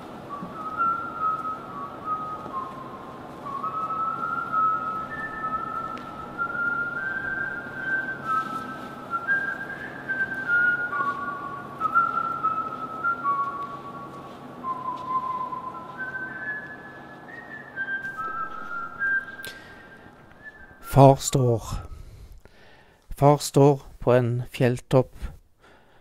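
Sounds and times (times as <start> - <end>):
person whistling a slow melody: 0.0 - 22.3.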